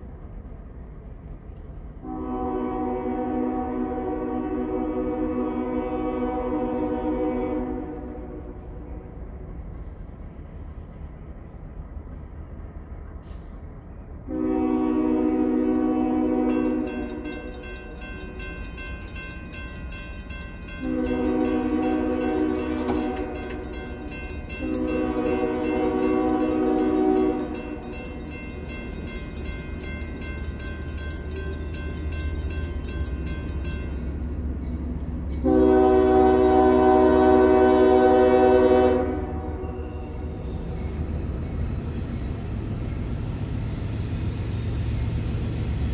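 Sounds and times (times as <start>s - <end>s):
locomotive air horn blasts: 2.0s - 8.8s, 14.3s - 17.6s, 20.8s - 23.7s, 24.5s - 28.2s, 35.4s - 40.1s
crossing warning bell ringing: 14.5s - 45.9s.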